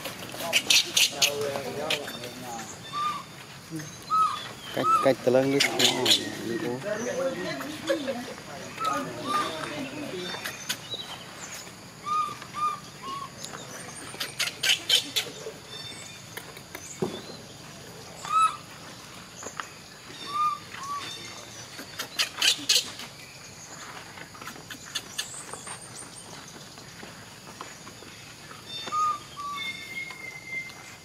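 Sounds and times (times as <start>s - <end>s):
high arched animal calls: 0.0s - 17.0s, 18.1s - 18.7s, 20.0s - 23.2s, 28.6s - 31.0s.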